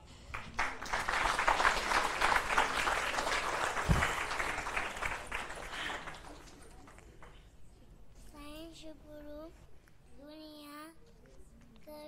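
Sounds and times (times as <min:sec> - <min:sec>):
audience applauding: 0:00.3 - 0:07.4.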